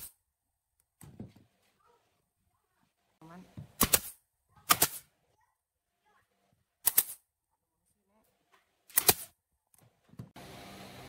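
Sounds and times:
nail gun firing: 0:03.8 - 0:05.1, 0:06.8 - 0:07.2, 0:08.9 - 0:09.4.

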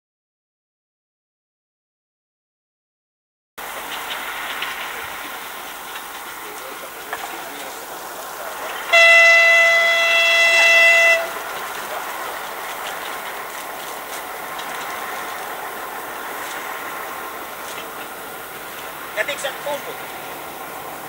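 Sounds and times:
locomotive horn: 0:08.6 - 0:13.2.

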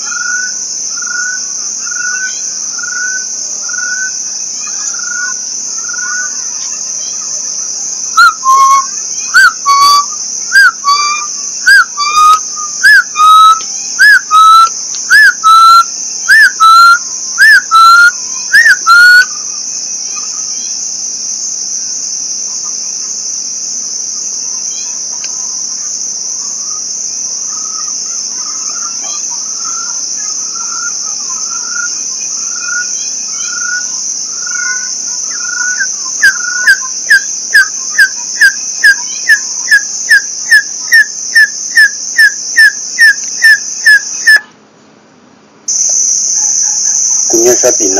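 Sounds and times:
faint chirps: 0:00.0 - 0:44.6, 0:45.7 - 0:47.9
crickets and insects buzzing: 0:00.0 - 0:47.9
loud whistled notes: 0:08.2 - 0:19.3.

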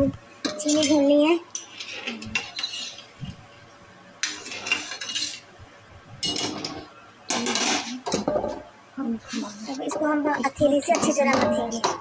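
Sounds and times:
metal spoon scraping steel pan: 0:00.5 - 0:03.1, 0:04.2 - 0:05.4.

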